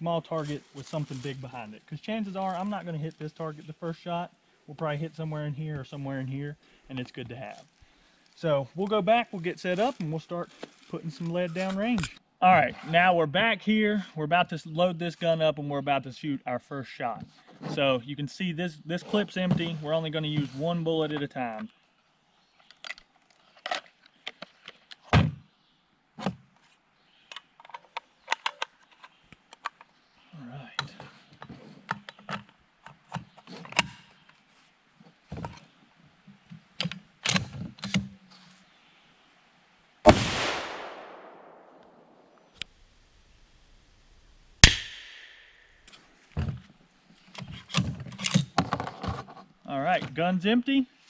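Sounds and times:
loud rifle shot echoing: 0:40.1 - 0:42.3, 0:44.6 - 0:45.7
rifle bolt metallic clack: 0:44.6 - 0:45.6.

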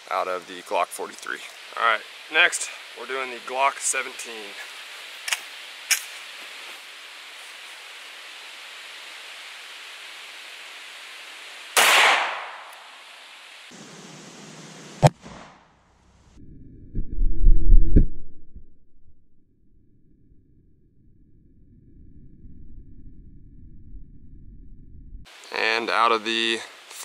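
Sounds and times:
sharp crack: 0:05.2 - 0:06.2, 0:11.8 - 0:13.0
pistol shot: 0:11.8 - 0:12.8.

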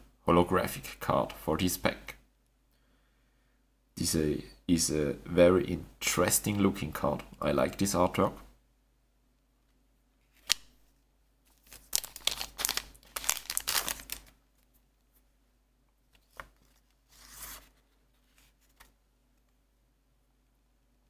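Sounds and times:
wrapper crinkling: 0:11.5 - 0:14.7.

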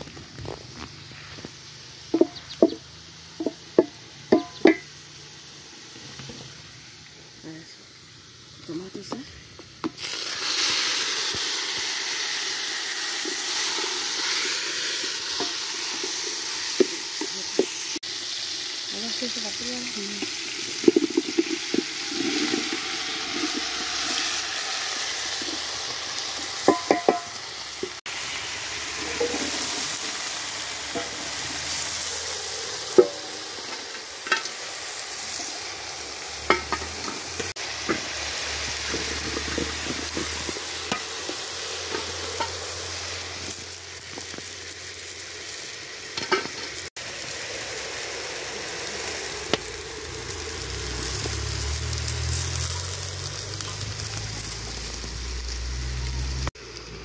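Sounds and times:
loud sizzle in hot oil: 0:00.0 - 0:57.0
wooden spoon knocking metal pot: 0:02.1 - 0:02.8, 0:03.4 - 0:04.9, 0:26.6 - 0:27.3.

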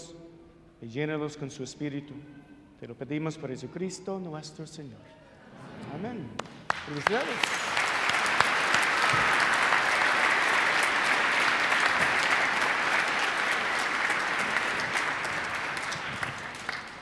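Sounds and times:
crowd applauding: 0:06.4 - 0:17.0.

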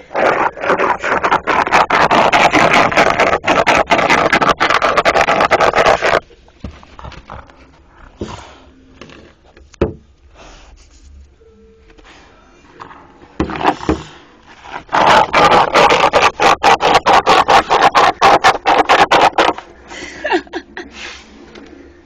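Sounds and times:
dog scratching and digging: 0:00.0 - 0:06.2, 0:14.6 - 0:19.6.

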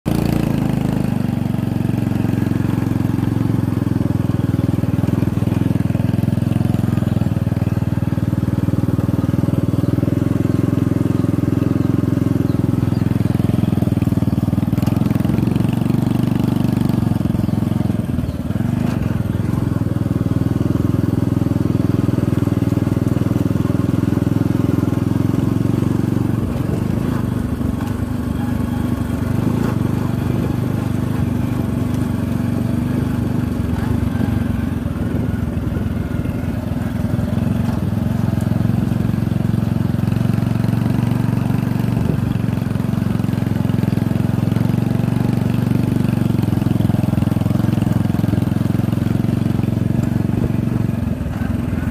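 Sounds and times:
motorcycle engine running: 0:00.0 - 0:51.9.

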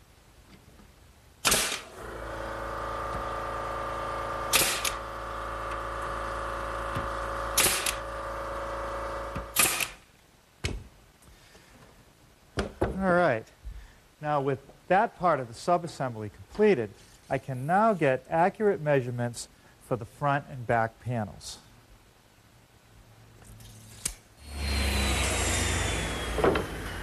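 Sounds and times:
nail gun firing: 0:01.4 - 0:02.1, 0:04.5 - 0:05.1, 0:06.9 - 0:08.1, 0:09.2 - 0:10.0
steady mechanical hum: 0:01.4 - 0:10.0.

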